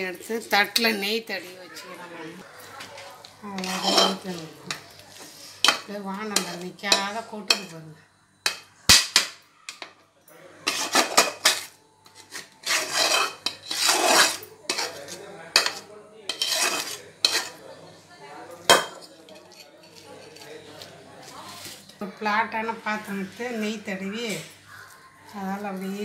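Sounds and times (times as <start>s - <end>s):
metal spoon scraping pan: 3.5s - 7.8s, 10.6s - 17.6s
spoon clinking on steel plate: 15.6s - 17.5s.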